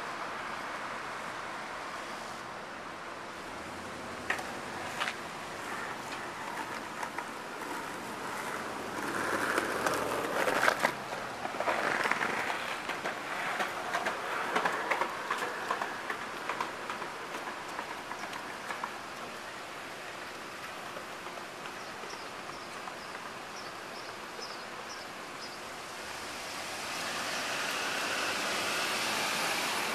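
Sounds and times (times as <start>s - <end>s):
steady traffic noise: 0.0s - 29.9s
vehicle approaching: 3.3s - 18.8s, 25.9s - 29.9s.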